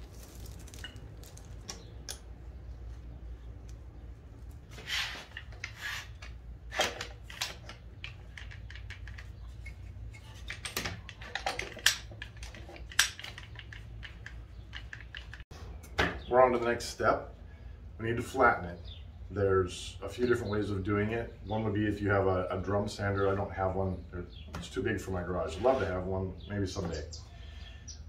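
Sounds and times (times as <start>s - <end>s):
short scrapes: 4.7s - 6.2s, 25.5s - 26.0s
clamps clicking and clacking: 5.3s - 15.4s.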